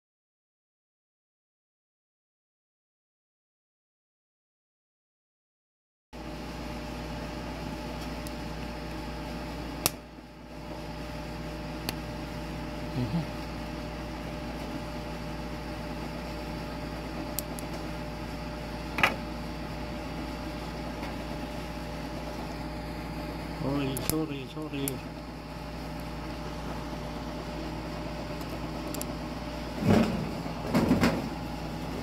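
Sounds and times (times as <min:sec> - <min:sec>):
steady mechanical hum: 0:06.2 - 0:32.0.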